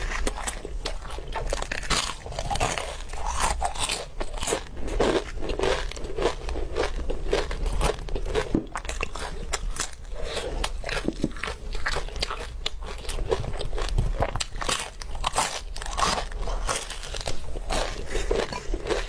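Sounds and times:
person chewing meat: 0.0 - 19.0.

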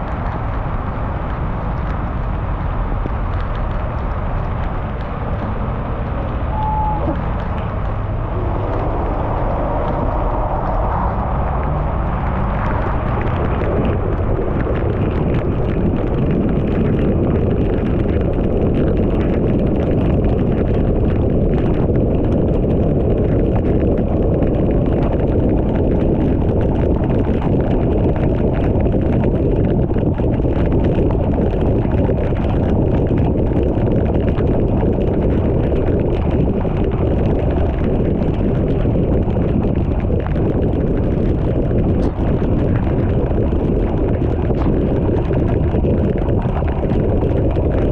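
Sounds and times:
raindrops ticking on car: 0.0 - 8.3, 10.8 - 47.9.

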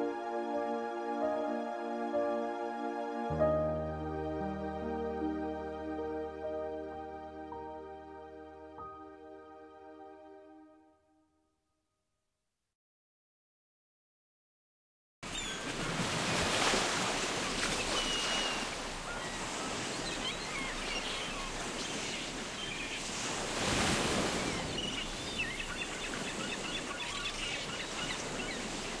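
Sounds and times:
ocean surf washing in: 15.9 - 29.0
birds calling: 24.3 - 28.9.

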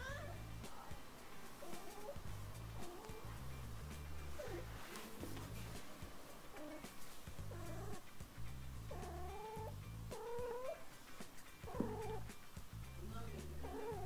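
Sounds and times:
cat yowling: 0.0 - 0.4, 1.6 - 2.2, 7.5 - 8.0, 8.9 - 10.9, 11.6 - 12.3, 13.6 - 14.0.

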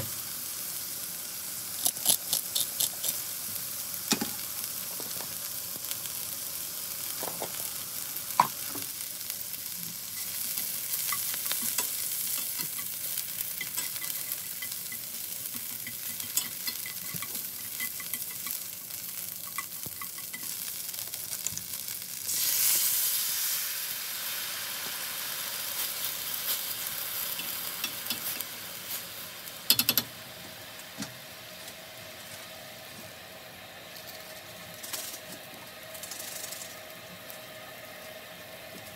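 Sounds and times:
meat sizzling in oil: 0.0 - 32.8
liquid hitting hot pan: 8.4 - 8.9.

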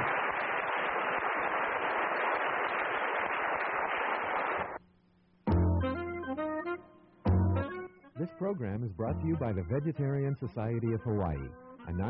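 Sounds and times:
audience applause: 0.0 - 4.8
music: 5.4 - 12.0.

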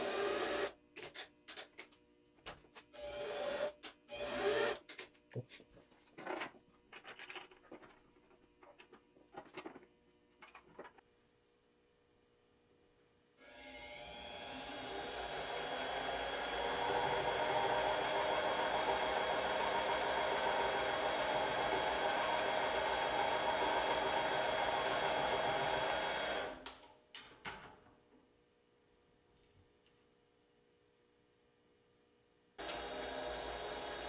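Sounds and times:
lathe motor and gear whine: 13.6 - 26.6.

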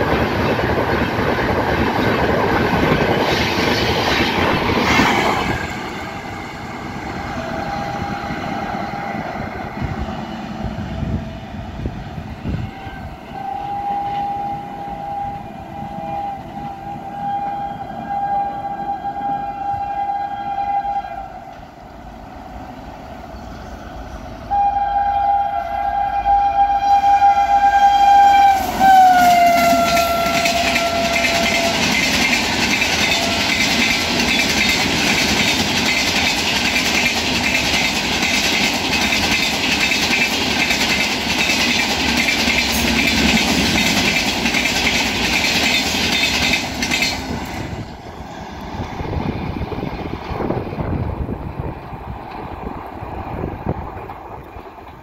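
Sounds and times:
train wheels clickety-clack: 0.0 - 6.3, 28.2 - 55.0
train horn blasts: 4.8 - 21.8, 24.5 - 32.2, 32.8 - 34.0.

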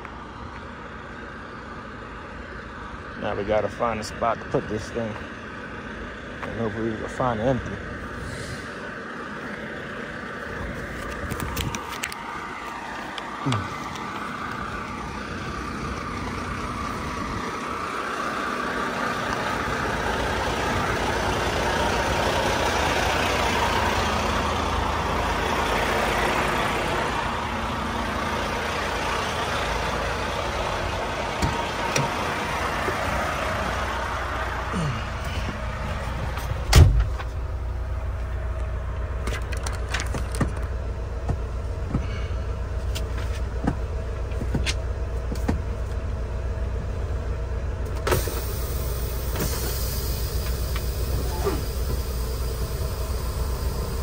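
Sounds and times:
diesel truck idling: 0.0 - 54.0
sharp thump: 36.7 - 37.3.

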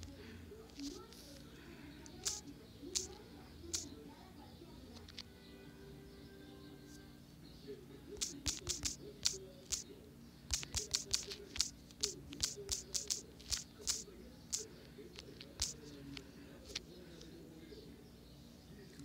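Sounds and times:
touchscreen typing taps: 8.2 - 9.8, 10.5 - 14.6.

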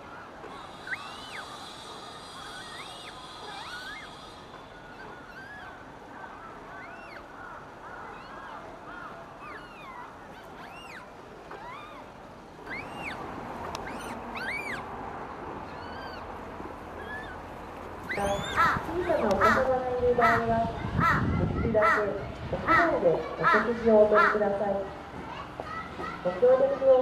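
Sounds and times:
steady background hiss: 0.0 - 20.9
short high chirping calls: 0.6 - 5.8, 10.6 - 12.0, 12.7 - 13.2, 13.8 - 14.8, 18.1 - 18.8.

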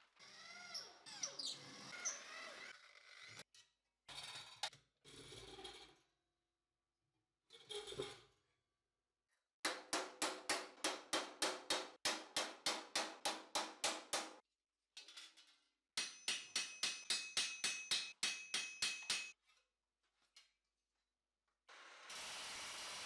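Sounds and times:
hammer striking steel plate: 16.0 - 19.4.

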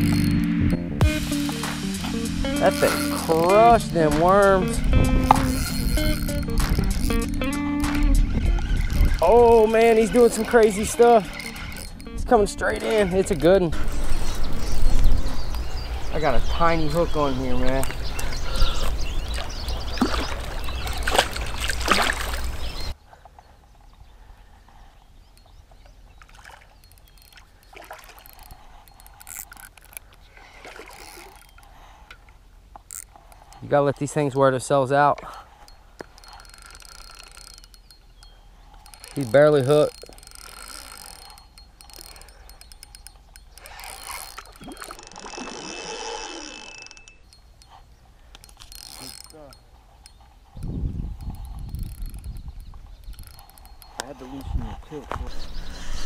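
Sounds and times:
rough noisy sound: 0.0 - 14.4
fishing reel clicking: 0.0 - 15.0, 26.8 - 30.2, 30.8 - 32.2, 32.8 - 54.8
fish splashing in water: 19.3 - 22.7.

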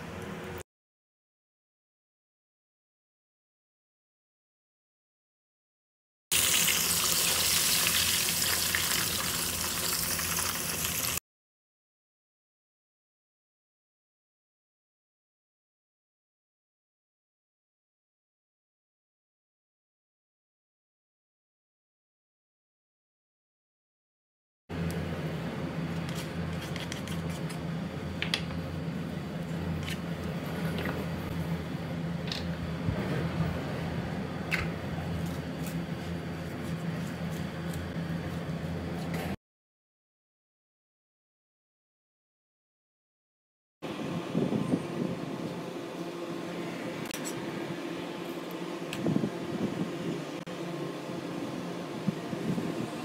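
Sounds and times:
steady low hum: 24.7 - 39.4.

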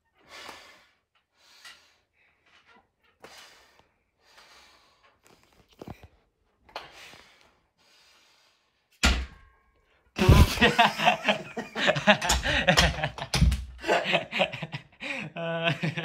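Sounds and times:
man breathing heavily: 0.2 - 2.5, 3.2 - 5.6, 6.8 - 8.9, 10.2 - 10.7, 11.6 - 12.8, 13.8 - 15.7
loud laughter: 10.2 - 16.0.

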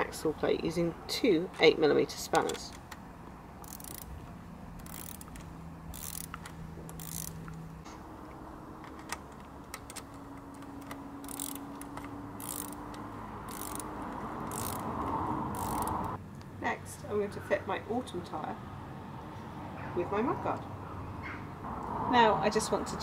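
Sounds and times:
ratchet spanner clicking: 3.6 - 4.2, 4.8 - 7.6, 8.8 - 16.2.

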